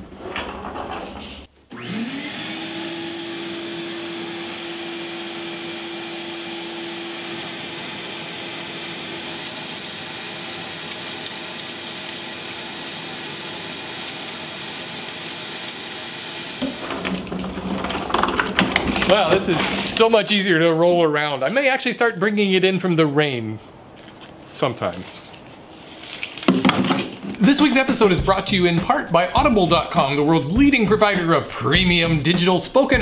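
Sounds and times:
shop vacuum running: 1.7s - 20.1s.

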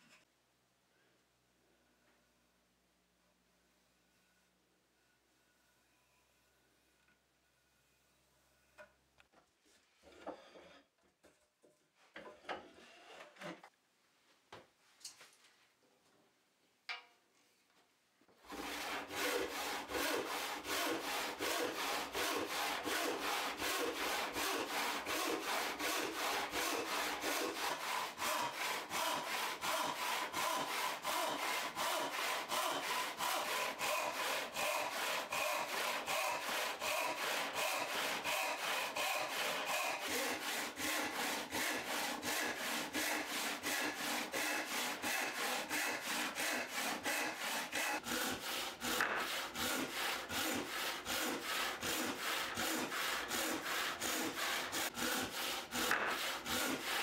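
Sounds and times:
hand saw cutting wood: 18.4s - 57.0s.

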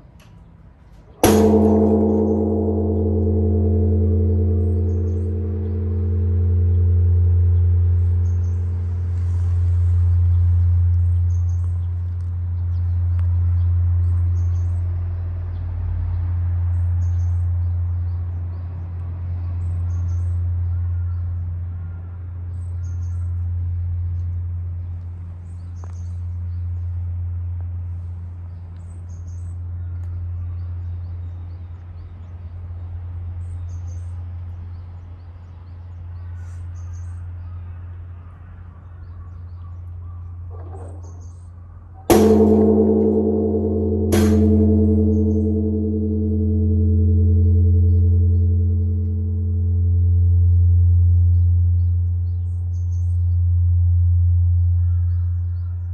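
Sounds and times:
wooden log striking bell: 1.2s - 9.8s, 42.0s - 52.2s
temple bell ringing hum: 1.2s - 12.2s, 42.0s - 55.7s.

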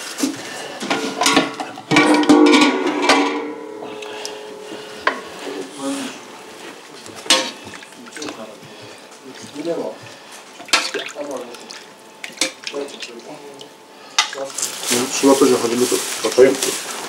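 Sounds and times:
bowls and tableware clinking: 0.9s - 8.3s.

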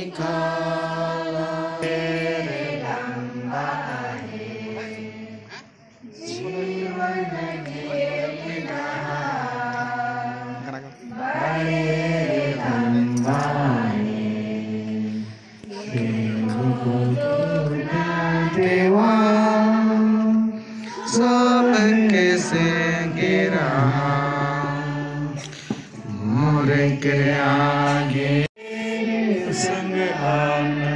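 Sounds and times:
group of voices chanting: 0.0s - 18.9s, 20.8s - 25.4s.

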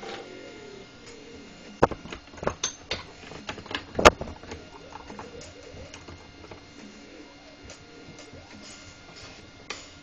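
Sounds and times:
clicks and knocks of handling electronics: 1.7s - 6.7s.

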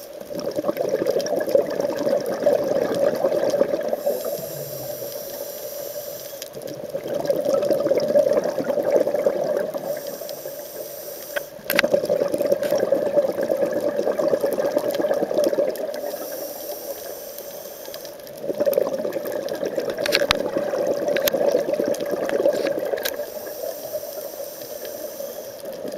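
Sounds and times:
diver breathing through regulator: 3.9s - 6.6s, 16.0s - 18.1s.

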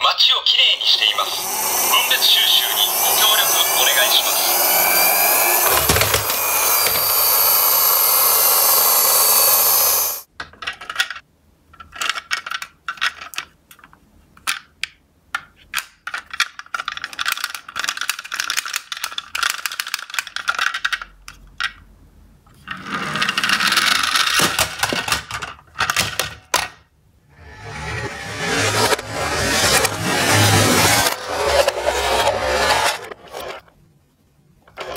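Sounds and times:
steady noise: 0.4s - 10.3s
plastic toy trucks clattering: 10.4s - 11.2s, 11.8s - 14.8s, 15.4s - 21.8s, 22.6s - 26.8s.

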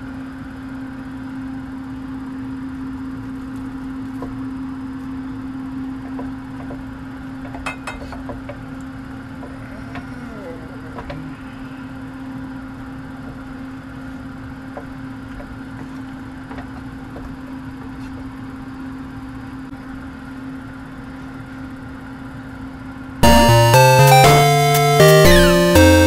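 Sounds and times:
loud music: 23.2s - 26.0s.

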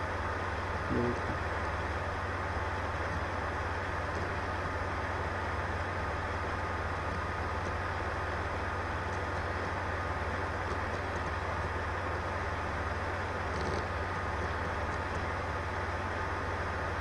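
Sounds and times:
low hum with hiss: 0.0s - 17.0s.

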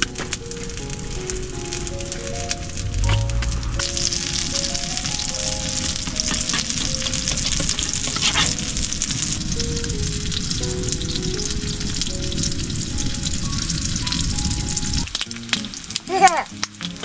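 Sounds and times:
sizzling crackling hiss: 0.0s - 17.0s
slow melodic background music: 0.0s - 17.0s.

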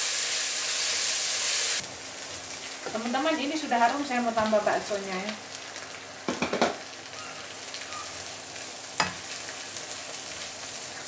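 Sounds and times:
food sizzling in hot oil: 0.0s - 11.0s.

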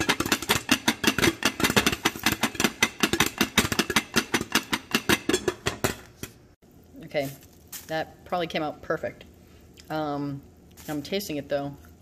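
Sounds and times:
popcorn popping in a pot: 0.0s - 6.4s.

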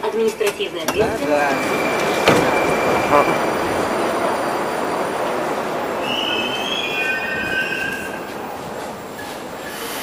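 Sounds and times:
metro train rumble: 0.0s - 10.0s
high-pitched brake squeal: 1.2s - 3.5s, 6.0s - 8.4s, 9.1s - 10.0s.

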